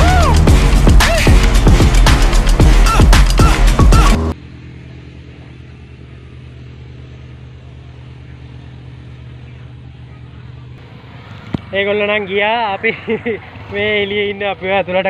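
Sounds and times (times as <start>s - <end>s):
electronic music with steady beat: 0.0s - 4.4s
light aircraft engine droning: 4.3s - 15.0s.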